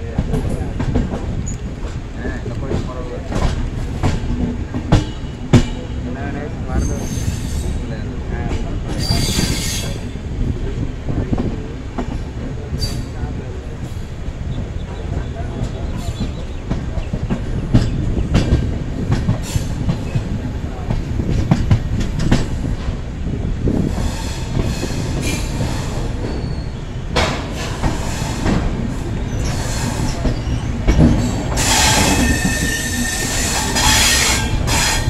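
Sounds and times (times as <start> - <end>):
train coaches rumbling: 0.0 - 35.0
wheels clacking over rail joints: 0.0 - 35.0
train wheels and brakes squealing: 6.7 - 8.0, 8.8 - 10.7, 12.8 - 13.2, 19.4 - 20.2, 23.9 - 28.6, 29.2 - 35.0.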